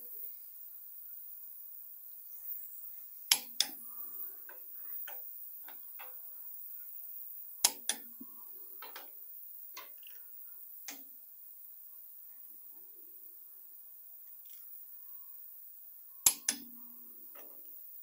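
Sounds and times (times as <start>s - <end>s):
torque wrench clicking: 3.3s - 6.3s, 7.1s - 8.1s, 8.8s - 10.2s, 10.8s - 11.1s, 16.2s - 17.8s.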